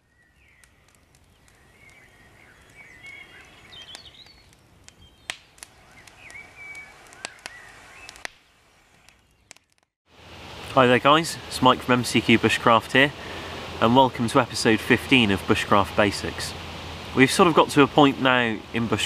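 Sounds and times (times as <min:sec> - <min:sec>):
birds chirping and warbling: 0:00.0 - 0:09.6
campfire popping and crackling: 0:00.0 - 0:19.0.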